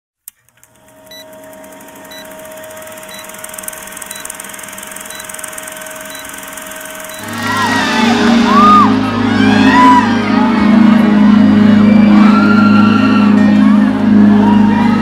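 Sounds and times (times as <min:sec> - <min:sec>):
film projector clattering: 0:00.3 - 0:07.3
short high beeps: 0:01.1 - 0:01.4, 0:02.0 - 0:07.4.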